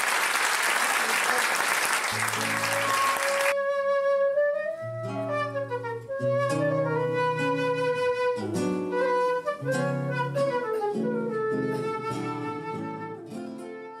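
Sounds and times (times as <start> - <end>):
flute melody: 2.3 - 14.0
plucked guitar: 4.7 - 14.0.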